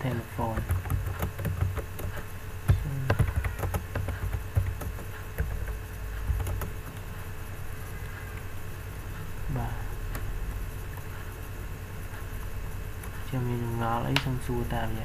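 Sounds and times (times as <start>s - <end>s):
low steady hum: 0.0s - 15.0s
computer keyboard tapping: 0.1s - 7.0s.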